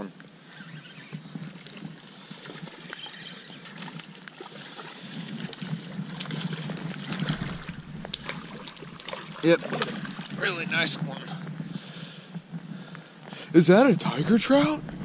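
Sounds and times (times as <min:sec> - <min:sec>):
fish splashing in water: 0:02.1 - 0:10.3.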